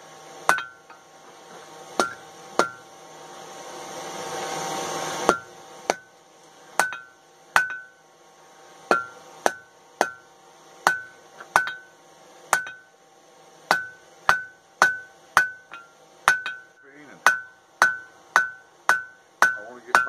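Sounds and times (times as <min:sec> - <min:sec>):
hammer striking steel on anvil: 0:00.5 - 0:01.0, 0:02.0 - 0:02.8, 0:05.3 - 0:06.1, 0:06.8 - 0:08.0, 0:08.9 - 0:13.0, 0:13.7 - 0:20.0.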